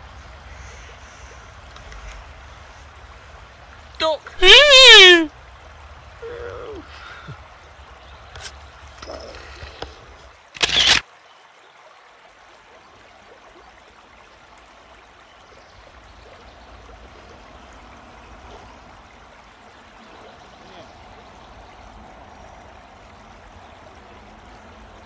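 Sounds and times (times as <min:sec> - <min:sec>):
river water trickling and lapping: 0:00.0 - 0:25.0
brief vocal sound: 0:04.4 - 0:05.3.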